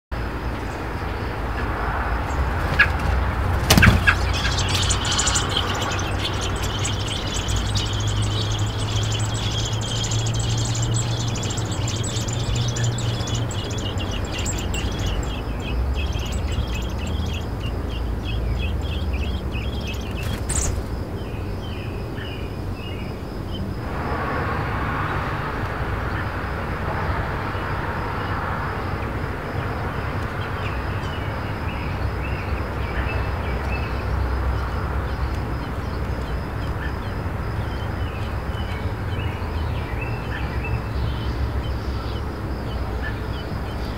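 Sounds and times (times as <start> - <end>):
nestlings begging chirps: 0.5 - 23.7, 30.0 - 43.9.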